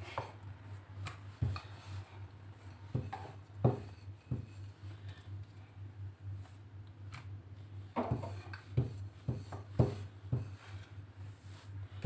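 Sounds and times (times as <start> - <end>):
steady low hum: 0.0 - 12.0
rolling pin knocking and rubbing: 2.6 - 4.7, 7.9 - 12.0.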